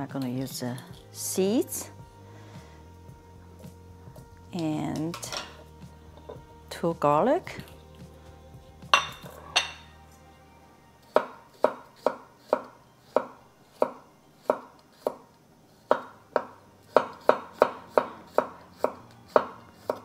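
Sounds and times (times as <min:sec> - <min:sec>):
knife chopping on wooden board: 0:11.1 - 0:15.2, 0:15.9 - 0:20.0.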